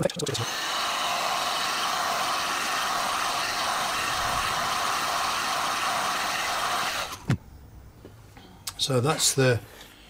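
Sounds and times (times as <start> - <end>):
hot air gun blowing: 0.3 - 7.3.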